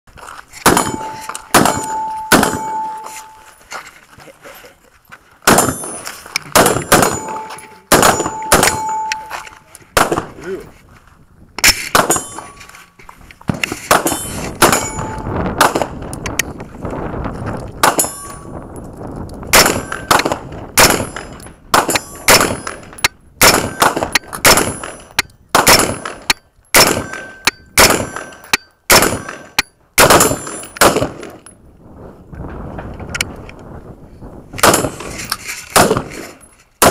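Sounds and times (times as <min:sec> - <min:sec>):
rifle shots: 0:00.6 - 0:03.4, 0:05.5 - 0:09.4, 0:10.0 - 0:10.4, 0:11.6 - 0:12.6, 0:13.5 - 0:16.0, 0:17.8 - 0:18.3, 0:19.5 - 0:31.4, 0:34.6 - 0:36.9
short metallic ring: 0:00.8 - 0:03.6, 0:07.1 - 0:09.6, 0:12.1 - 0:13.0, 0:14.1 - 0:15.4, 0:18.0 - 0:18.6.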